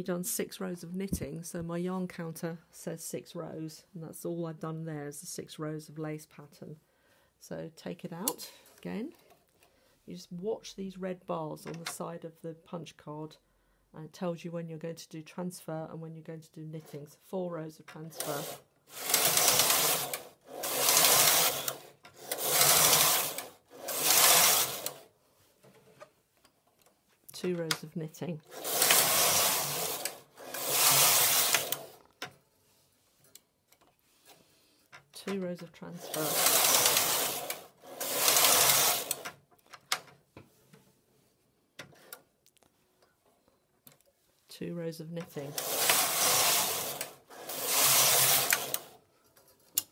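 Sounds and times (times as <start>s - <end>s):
knitting machine carriage rasping: 18.0s - 25.1s, 28.4s - 32.1s, 35.2s - 39.4s, 45.2s - 49.0s.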